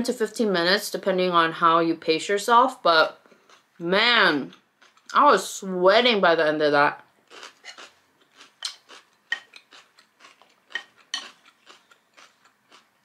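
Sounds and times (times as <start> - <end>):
crunching and chewing pepper: 4.5 - 5.2, 7.3 - 13.0.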